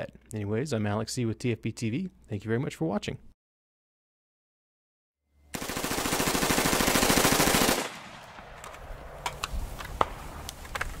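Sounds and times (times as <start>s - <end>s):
automatic rifle fire: 5.5s - 9.1s.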